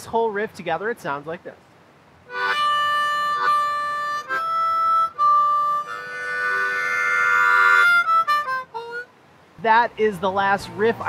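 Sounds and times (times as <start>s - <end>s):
harmonica playing blues riff: 2.3s - 9.1s.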